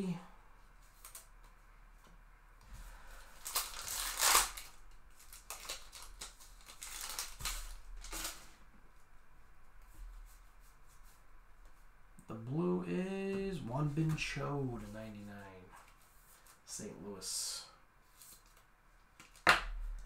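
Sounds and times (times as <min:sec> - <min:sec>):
wrapper tearing and crinkling: 0:03.4 - 0:08.5.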